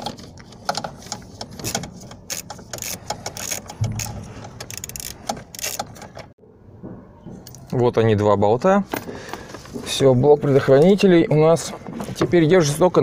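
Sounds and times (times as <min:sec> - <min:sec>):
ratcheting screwdriver clicking: 0:01.6 - 0:06.2.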